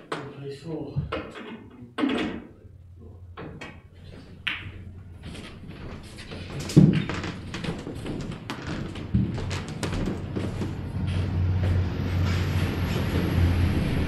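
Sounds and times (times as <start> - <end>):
balls rolling ticks: 5.8 - 10.8.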